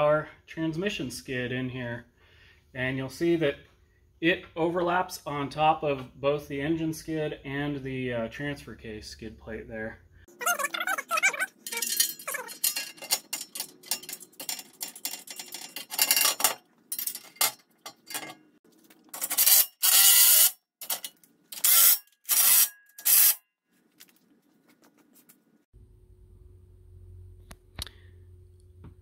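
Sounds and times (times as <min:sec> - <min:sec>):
metal plate clattering and scraping: 0:11.6 - 0:18.5.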